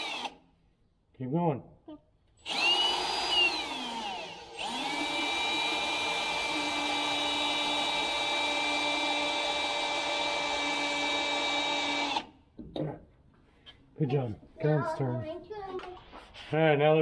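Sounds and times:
cordless drill motor whine: 0.0s - 0.4s, 2.4s - 12.3s.

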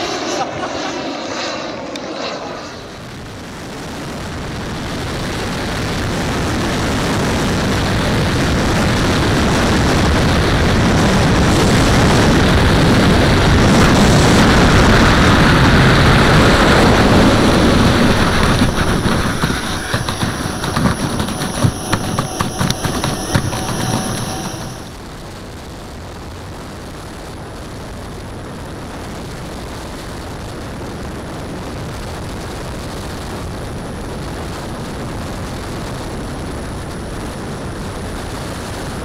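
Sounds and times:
turbine and air rushing: 0.0s - 5.8s, 10.2s - 25.0s
faint high turbine whine: 0.0s - 25.3s.

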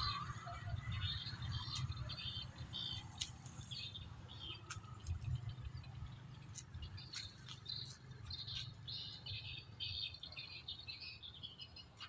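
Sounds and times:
steady low rumble: 0.0s - 9.6s
small birds chirping: 0.0s - 12.0s.

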